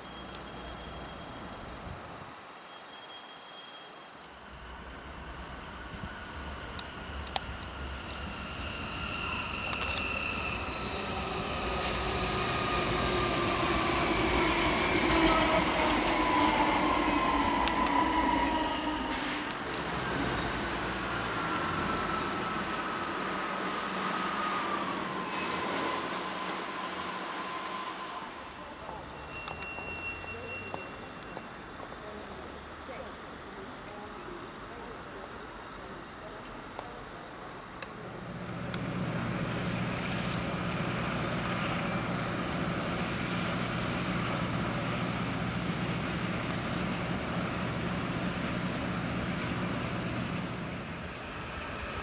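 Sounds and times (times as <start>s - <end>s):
electric train drive whine: 4.3s - 32.7s, 33.4s - 52.0s
wheels rumbling on rails: 4.4s - 32.6s, 37.6s - 52.0s
low background noise: 16.1s - 52.0s.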